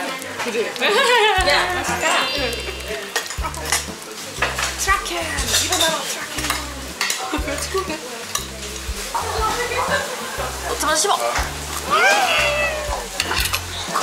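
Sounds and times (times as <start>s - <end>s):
fish sizzling in foil: 0.0s - 14.0s
chopsticks clicking on dishes: 5.4s - 7.4s, 8.3s - 8.9s, 13.2s - 14.0s.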